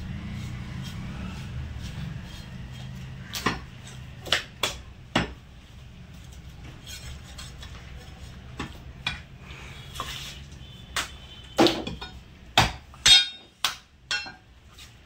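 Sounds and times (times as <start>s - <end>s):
cleaver chopping meat and bone: 0.0s - 5.4s, 10.9s - 13.9s.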